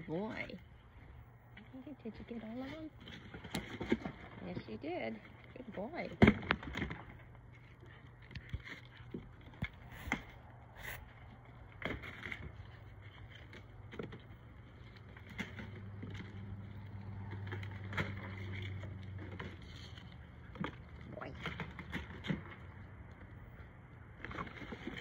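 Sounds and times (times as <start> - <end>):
low hum: 0.0 - 25.0
cardboard crackling and rustling: 2.7 - 23.4.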